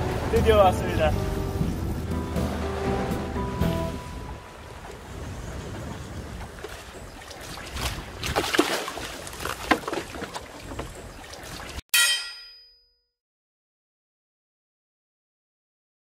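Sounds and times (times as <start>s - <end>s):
sea water: 0.0s - 11.9s
wind: 0.0s - 12.8s
hammer blow on anvil: 11.9s - 12.8s.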